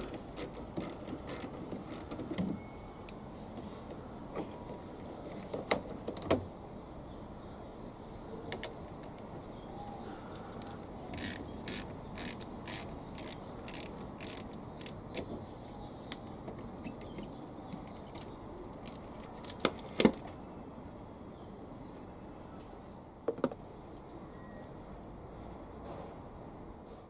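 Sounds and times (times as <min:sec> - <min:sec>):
ratchet wrench clicking: 0:00.0 - 0:02.2, 0:11.2 - 0:15.3.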